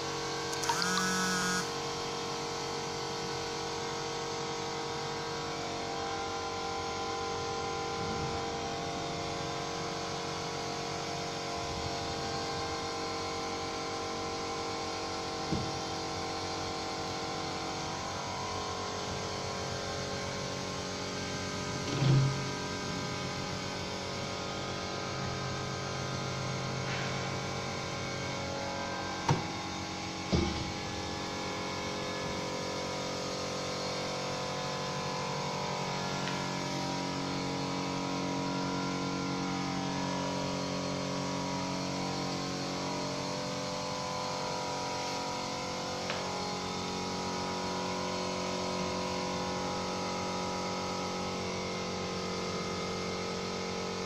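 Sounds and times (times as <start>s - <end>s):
steady hum of held tones: 0.0s - 21.8s.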